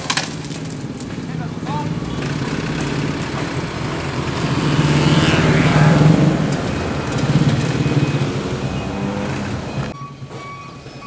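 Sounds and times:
tyres rolling over gravel: 0.0s - 5.0s
diesel truck engine revving: 0.3s - 11.0s.

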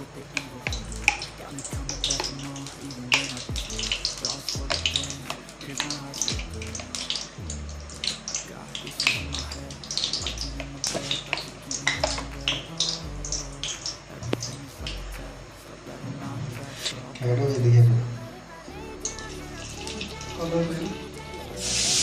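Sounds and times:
oil pouring and crackling in pan: 0.0s - 15.0s
music with deep bass beat: 0.0s - 22.0s.

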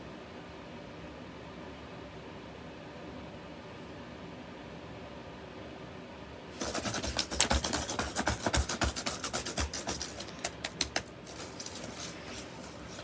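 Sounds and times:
laptop keys clattering: 6.6s - 11.9s.

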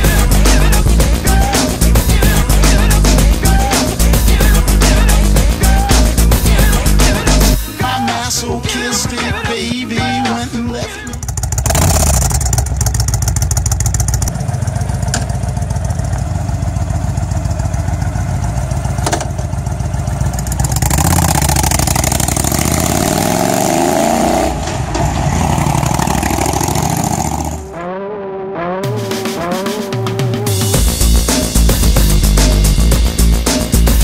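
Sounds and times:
motorcycle engine revving: 10.0s - 34.0s.

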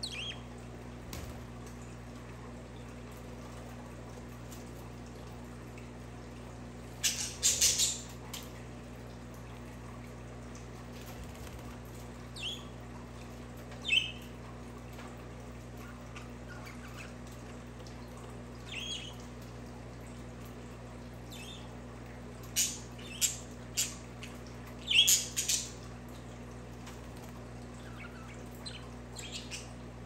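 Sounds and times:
budgerigars chirping and squawking: 0.0s - 0.5s, 7.0s - 8.1s.

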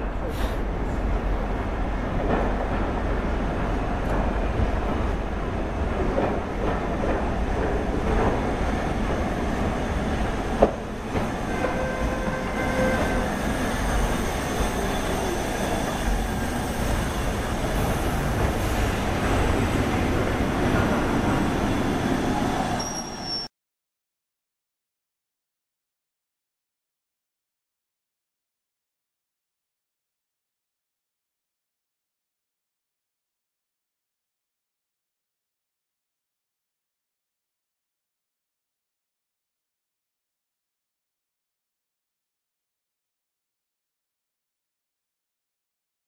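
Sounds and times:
train wheels rumbling on rails: 0.0s - 23.4s
thin squeal: 12.6s - 17.0s, 22.6s - 23.5s.

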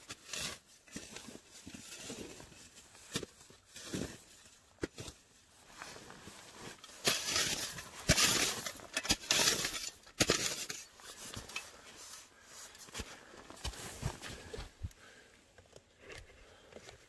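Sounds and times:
rustling and crunching in snow: 0.1s - 14.9s.

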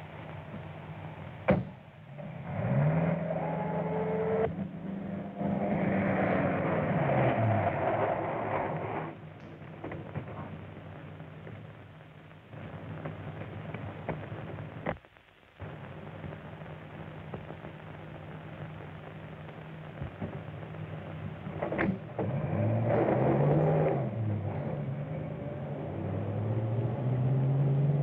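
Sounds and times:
car engine revving: 2.1s - 9.3s, 22.1s - 28.0s.

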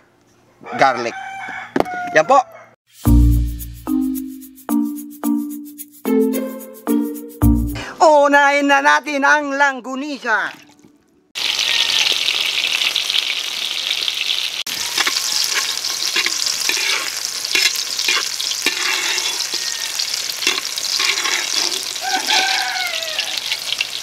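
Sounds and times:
sausages sizzling in a wok: 11.4s - 24.0s
metal spatula scraping a wok: 14.7s - 22.6s.

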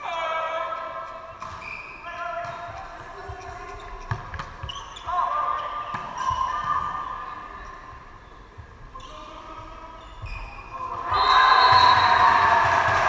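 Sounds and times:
players calling: 9.0s - 13.0s
crowd shouting and cheering: 10.8s - 13.0s.

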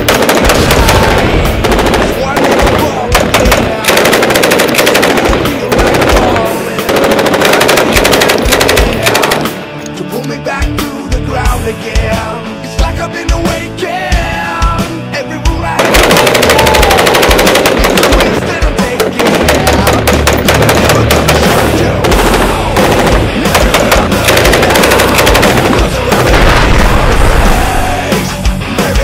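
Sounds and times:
machine-gun fire: 0.0s - 9.6s, 15.8s - 27.9s
rock music: 0.0s - 29.0s.

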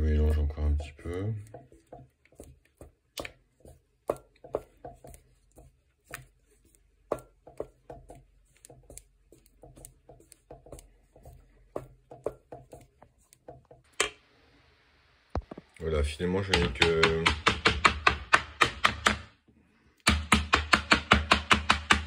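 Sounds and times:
utensil scraping bowl: 0.0s - 13.8s.

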